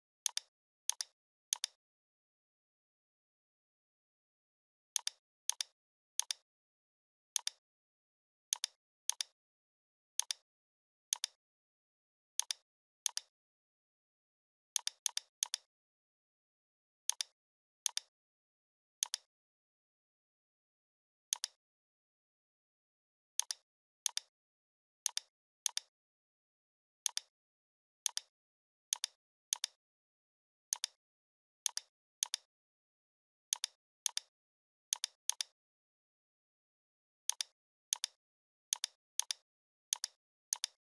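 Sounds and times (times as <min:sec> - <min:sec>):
computer mouse clicks: 0:00.2 - 0:01.8, 0:05.0 - 0:06.4, 0:08.5 - 0:09.4, 0:10.2 - 0:10.4, 0:11.1 - 0:11.4, 0:12.4 - 0:13.3, 0:14.8 - 0:15.7, 0:17.1 - 0:17.3, 0:17.9 - 0:18.1, 0:19.0 - 0:19.3, 0:21.3 - 0:21.6, 0:23.4 - 0:24.3, 0:25.0 - 0:25.9, 0:27.0 - 0:27.3, 0:28.0 - 0:28.3, 0:28.9 - 0:29.8, 0:30.7 - 0:31.0, 0:31.7 - 0:32.5, 0:33.5 - 0:34.3, 0:34.9 - 0:35.6, 0:37.3 - 0:40.8.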